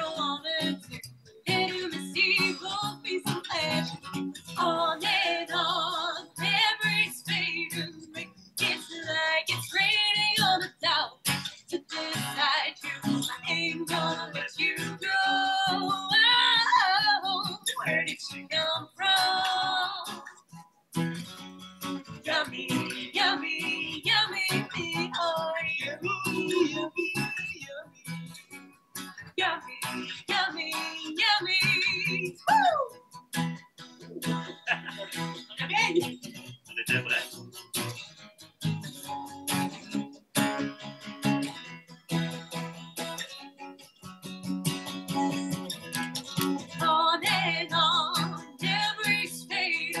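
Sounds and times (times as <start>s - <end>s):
guitar: 0.0s - 50.0s
person singing: 11.7s - 20.2s, 22.3s - 27.9s, 29.4s - 32.9s, 46.8s - 50.0s.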